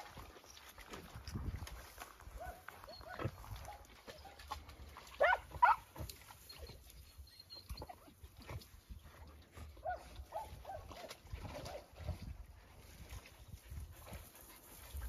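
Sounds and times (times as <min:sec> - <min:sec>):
dog whining yelps: 0:02.4 - 0:04.4, 0:05.2 - 0:05.8, 0:06.4 - 0:08.2.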